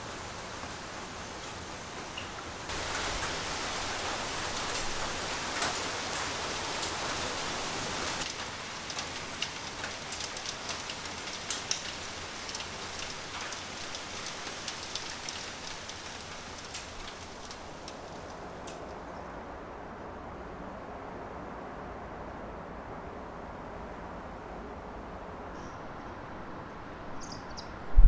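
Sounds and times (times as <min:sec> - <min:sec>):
rain falling: 0:00.0 - 0:18.9
rain drop clicks: 0:02.1 - 0:03.4, 0:08.2 - 0:18.9.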